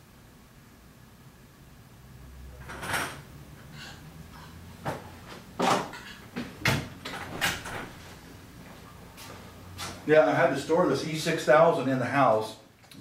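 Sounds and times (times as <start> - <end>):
objects knocking and clunking: 2.6 - 3.9, 4.8 - 8.0
door opening: 6.6 - 8.0.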